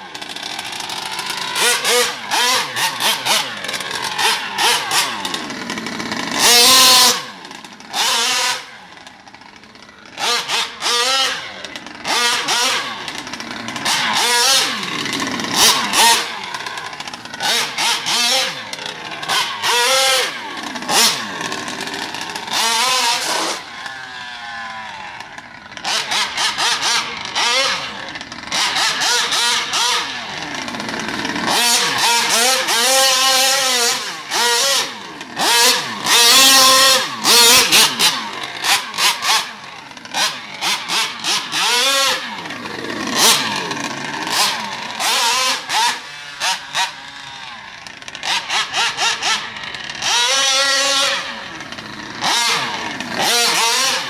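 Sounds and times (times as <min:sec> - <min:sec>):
two-stroke engine revving: 0:00.0 - 0:54.0.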